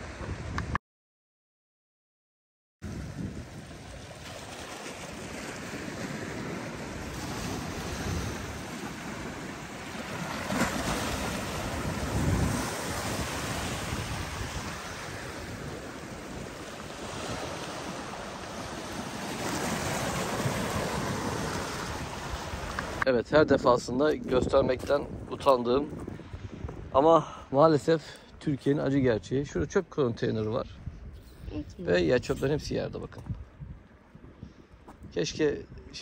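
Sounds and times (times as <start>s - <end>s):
wind buffeting microphone: 0.0s - 0.8s, 2.8s - 36.0s
waves breaking on rocks: 3.5s - 23.1s.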